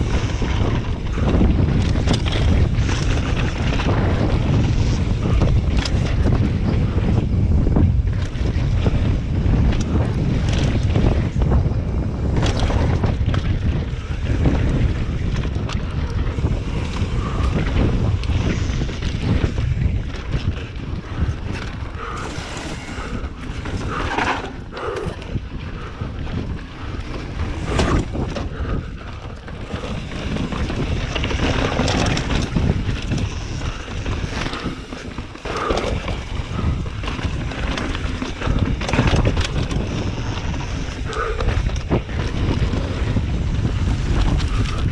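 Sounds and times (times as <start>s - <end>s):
bike knocking and rattling: 0.0s - 44.9s
tyres on dirt and rock: 0.0s - 44.9s
wind buffeting microphone: 0.0s - 44.9s.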